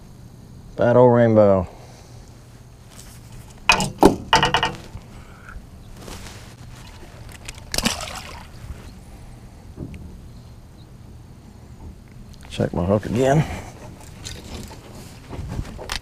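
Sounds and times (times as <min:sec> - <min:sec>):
water splashing: 0:06.6 - 0:08.8.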